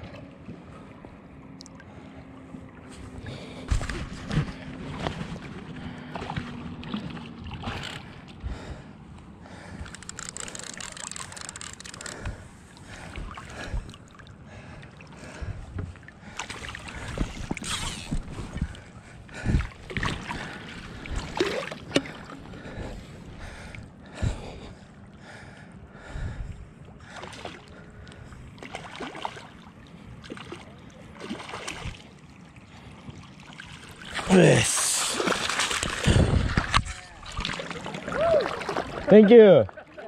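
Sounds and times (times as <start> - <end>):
fish thrashing in water: 9.8 - 14.2, 19.4 - 22.5, 33.5 - 39.1.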